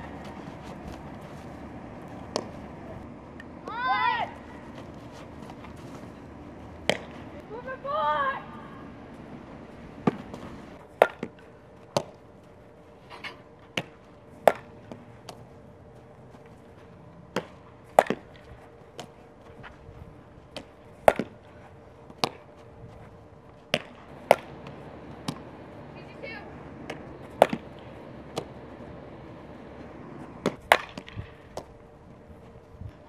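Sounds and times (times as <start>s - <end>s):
ball cracking off a bat: 2.0s - 2.6s, 6.8s - 7.3s, 13.7s - 15.4s, 17.3s - 18.4s, 20.5s - 21.4s, 23.7s - 25.6s, 26.8s - 28.8s, 30.3s - 31.7s.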